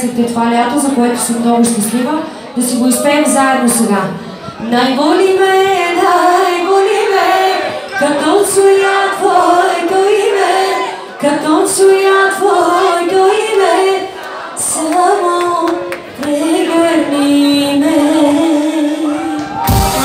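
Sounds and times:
woman singing into a microphone: 0.0 - 19.6
backing music: 18.4 - 20.0.

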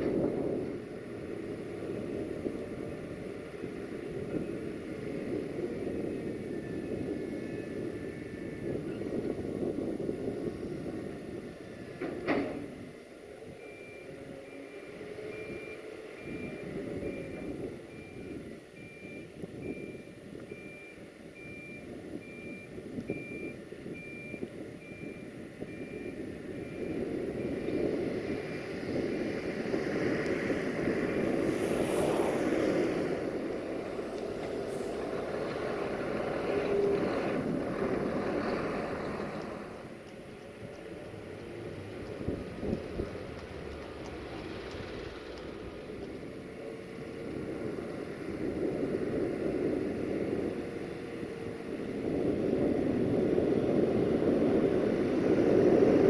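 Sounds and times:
diesel locomotive engine running: 0.0 - 56.0
reversing alarm beeps: 5.9 - 9.3, 13.5 - 28.8.

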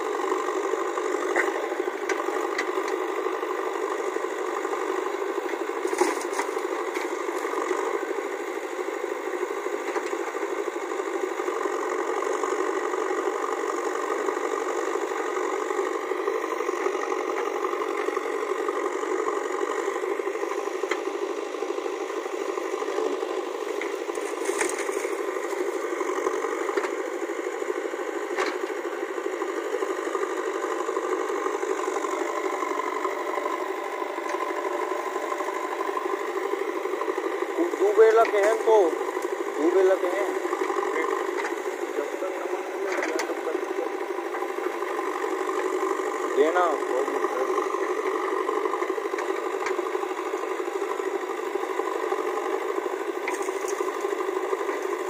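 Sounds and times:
backhoe diesel engine running: 0.0 - 55.0.

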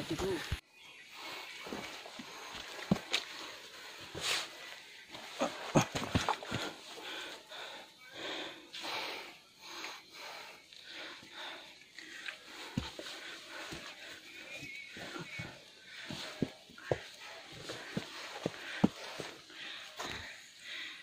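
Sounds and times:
heavy breathing: 1.1 - 21.0
boots knocking on logs: 2.5 - 3.2.

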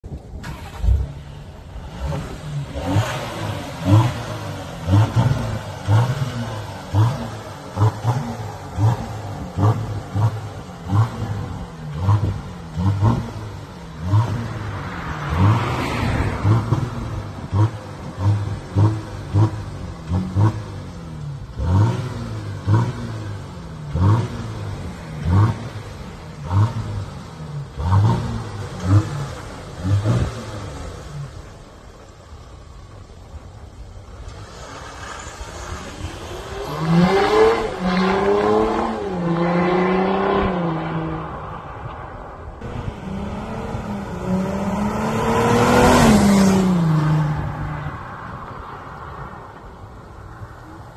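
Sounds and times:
diesel engine revving in blips: 0.4 - 31.6.

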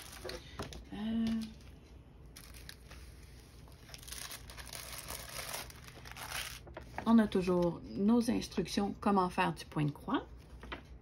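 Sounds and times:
plastic bag crinkling: 0.0 - 0.6, 2.4 - 7.6.

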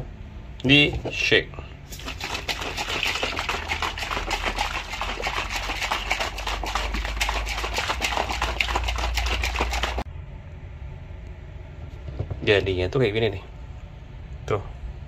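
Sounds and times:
shaker bottle rattling and sloshing: 1.9 - 10.1.

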